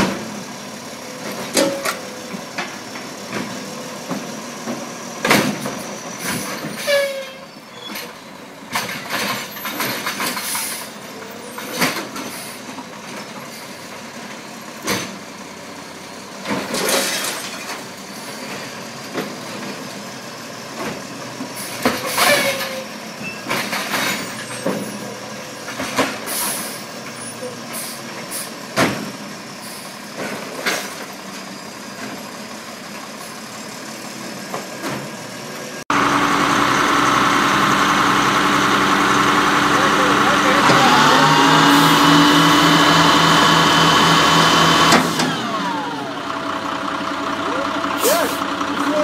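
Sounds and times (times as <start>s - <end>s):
garbage truck engine running: 0.0s - 6.9s, 7.5s - 49.0s
knocks and bangs of carts: 1.1s - 13.5s, 20.7s - 27.2s, 28.2s - 29.4s.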